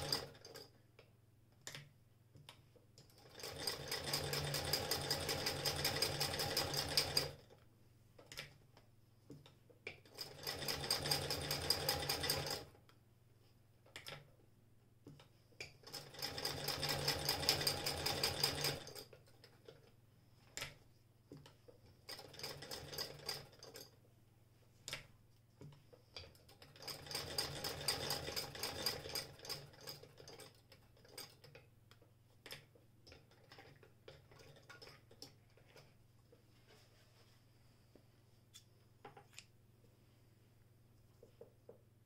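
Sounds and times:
sewing machine clicking: 0:00.0 - 0:00.7, 0:03.0 - 0:07.5, 0:10.0 - 0:12.7, 0:15.8 - 0:19.8, 0:22.1 - 0:23.9, 0:26.2 - 0:31.6.

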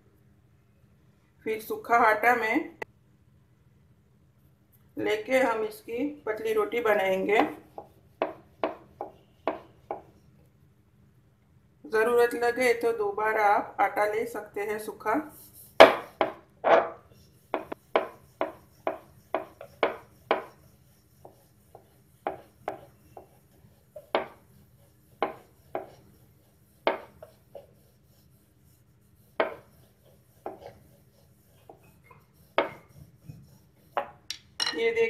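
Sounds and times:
rolling pin knocking on wooden board: 0:07.4 - 0:10.1, 0:15.8 - 0:20.6, 0:24.0 - 0:24.4, 0:25.2 - 0:26.0, 0:26.8 - 0:27.3, 0:29.4 - 0:29.7.

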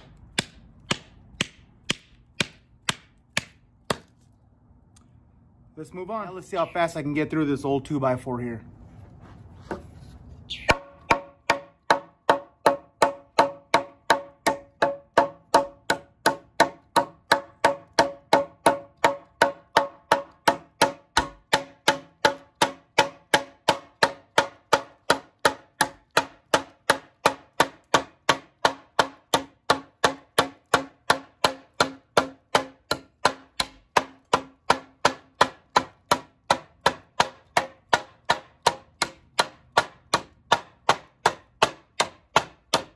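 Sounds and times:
knife chopping into wood: 0:00.0 - 0:04.2, 0:10.7 - 0:42.9.

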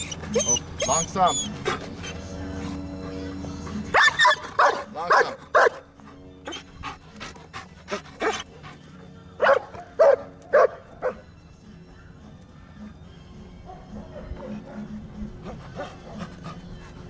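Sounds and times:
dog yipping softly: 0:00.0 - 0:02.2
dog barking: 0:04.0 - 0:05.8, 0:09.4 - 0:11.2.

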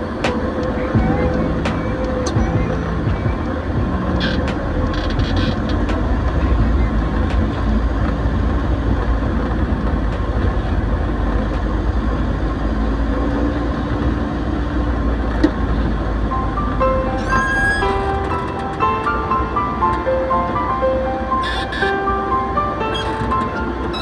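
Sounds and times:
wind rushing over microphone: 0:00.0 - 0:16.8.

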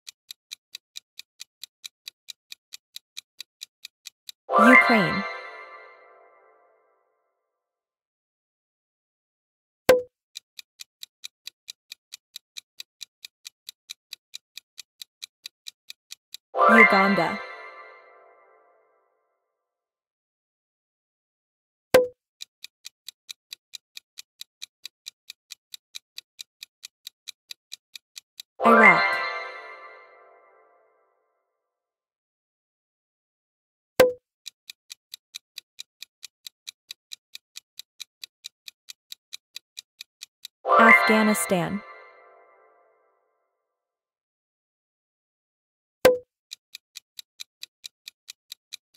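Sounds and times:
clock ticking: 0:00.0 - 0:06.0, 0:09.9 - 0:18.1, 0:22.0 - 0:30.1, 0:34.0 - 0:42.3, 0:46.1 - 0:48.9.

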